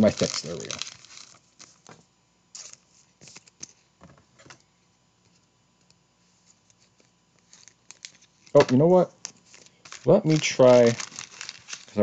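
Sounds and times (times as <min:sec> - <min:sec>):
trading cards tapping and rustling: 0:07.4 - 0:12.0.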